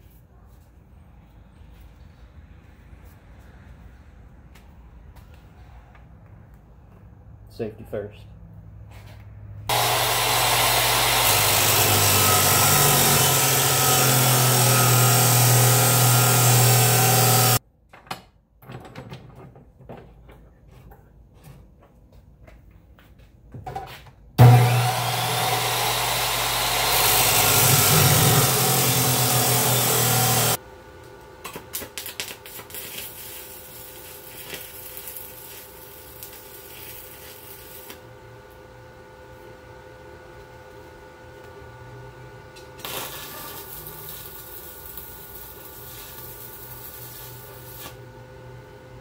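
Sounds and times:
arc welder crackling: 0:09.7 - 0:17.6, 0:24.4 - 0:38.1, 0:42.6 - 0:48.1
chop saw cutting steel: 0:09.7 - 0:17.6, 0:24.4 - 0:30.6.

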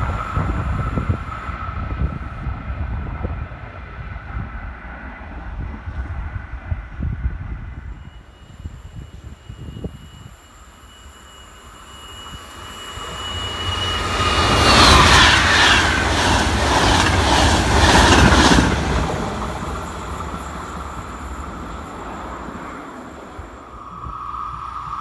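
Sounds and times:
train rumble passing: 0:00.0 - 0:25.0
thin high tone: 0:07.9 - 0:15.3, 0:19.7 - 0:25.0.

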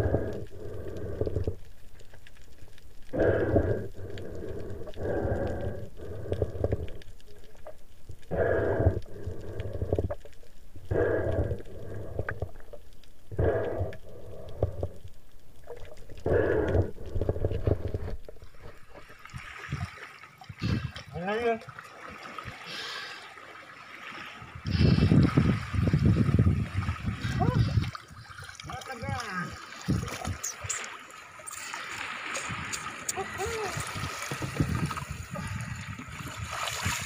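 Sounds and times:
heavy breathing through snorkel: 0:00.0 - 0:01.7, 0:03.1 - 0:07.2, 0:08.2 - 0:12.7, 0:13.3 - 0:15.2, 0:16.2 - 0:19.2, 0:20.6 - 0:21.1, 0:22.6 - 0:23.4, 0:24.6 - 0:25.5.

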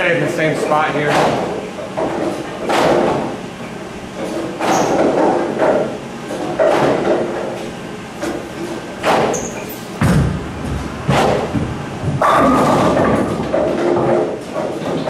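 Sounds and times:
sharp knocks and clatters: 0:01.0 - 0:03.4, 0:04.2 - 0:07.6, 0:08.2 - 0:15.0
bowling ball rolling rumble: 0:04.2 - 0:15.0.

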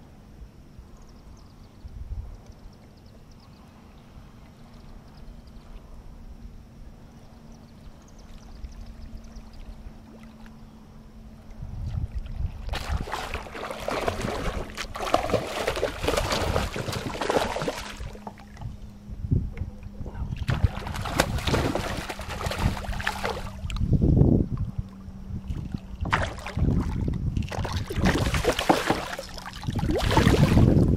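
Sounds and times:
fish thrashing and splashing: 0:12.7 - 0:18.6, 0:20.4 - 0:23.7, 0:25.5 - 0:30.7.

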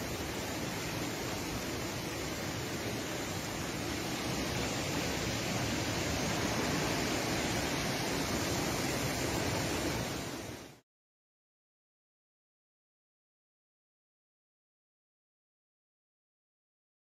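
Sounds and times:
river rushing: 0:00.0 - 0:10.8.

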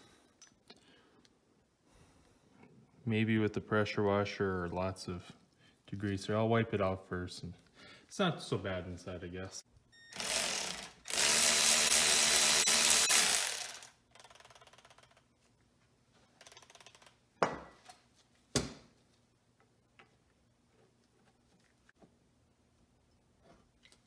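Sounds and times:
electric ratchet spinning: 0:10.2 - 0:15.2.

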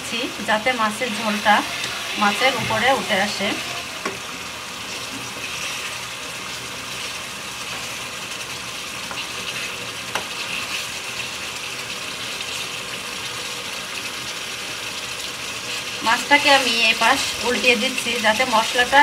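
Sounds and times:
gravy bubbling and sizzling: 0:00.0 - 0:19.0
spatula tapping pan: 0:10.1 - 0:10.3.

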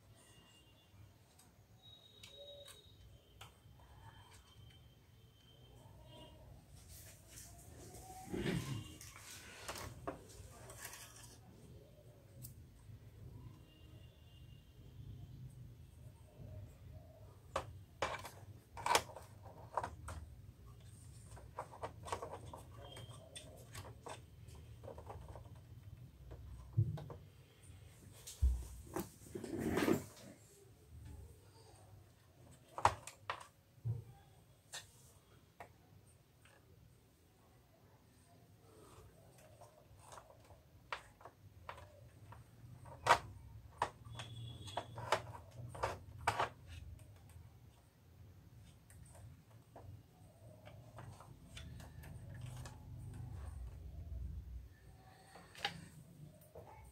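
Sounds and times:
clicks and rustles of printer parts: 0:17.5 - 0:27.3, 0:39.3 - 0:47.8.

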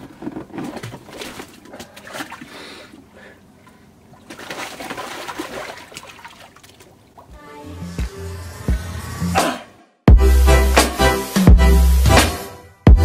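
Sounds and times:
water sloshing and splashing: 0:00.0 - 0:07.4
man breathing sharply: 0:02.4 - 0:03.5.

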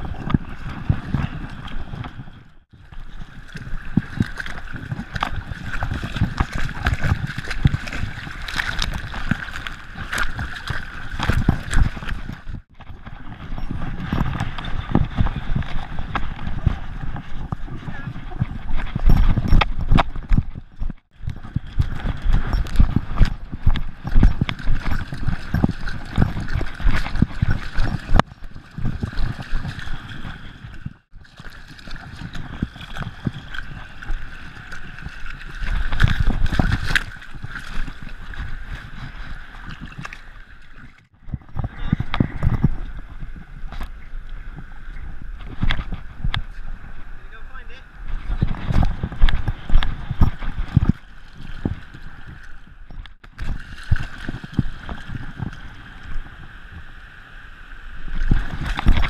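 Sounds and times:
splashing in surf: 0:03.0 - 0:12.7, 0:24.5 - 0:41.0, 0:53.3 - 0:56.9
camera knocking and rattling: 0:18.4 - 0:31.0, 0:35.0 - 0:40.2, 0:48.1 - 0:51.9.

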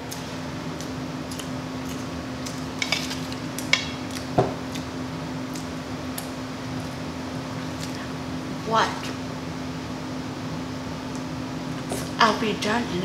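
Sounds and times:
steady low hum: 0:00.0 - 0:13.0
chewing and mouth smacks: 0:00.8 - 0:02.7, 0:03.3 - 0:04.9, 0:05.5 - 0:06.3.

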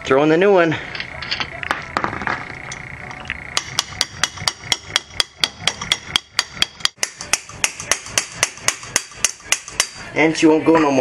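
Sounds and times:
wrench hammering on screwdriver: 0:03.6 - 0:10.0.

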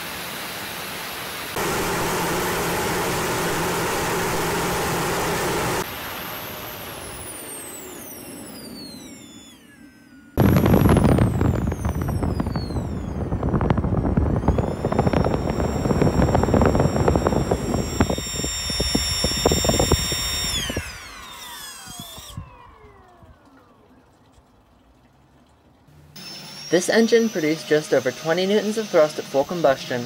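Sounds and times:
compressor whine: 0:00.7 - 0:30.0
jet thruster crackling roar: 0:01.6 - 0:07.4, 0:10.4 - 0:23.2.

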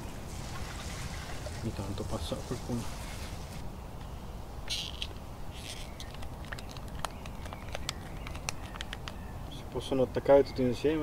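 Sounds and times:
distant traffic hum: 0:00.0 - 0:11.0
wind: 0:00.0 - 0:11.0
small sharp plastic clicks: 0:04.7 - 0:09.2
plastic pouch crinkling: 0:04.8 - 0:09.3.

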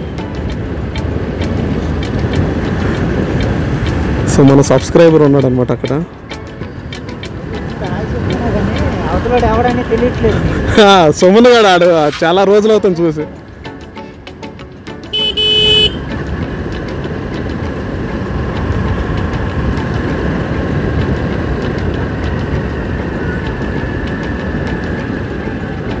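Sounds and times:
wind rushing past microphone: 0:00.0 - 0:05.9, 0:16.0 - 0:26.0
horn beep: 0:15.1 - 0:16.2
motorcycle engine running: 0:15.1 - 0:26.0.

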